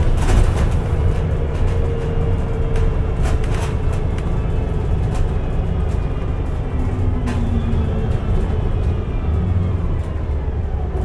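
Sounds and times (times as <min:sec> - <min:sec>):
bus engine rumble: 0:00.0 - 0:11.0.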